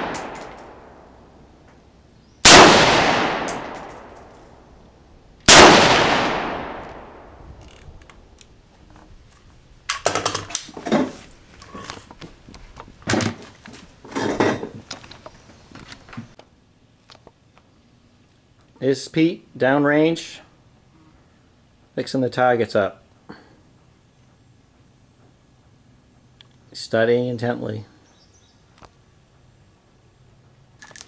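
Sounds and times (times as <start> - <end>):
gun handling clicks: 0.0 - 0.8, 2.9 - 4.4, 7.6 - 8.6, 9.8 - 10.8
rifle shots with echo: 0.0 - 1.1, 2.4 - 4.3, 5.5 - 7.4.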